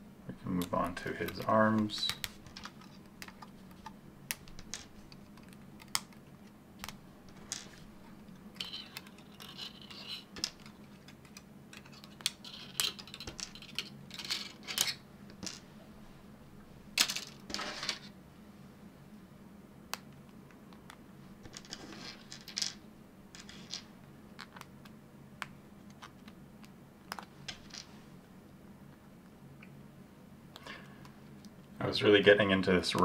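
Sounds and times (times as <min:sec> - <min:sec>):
plastic parts clicking and snapping: 0:00.6 - 0:07.0, 0:08.5 - 0:15.4, 0:27.0 - 0:27.6.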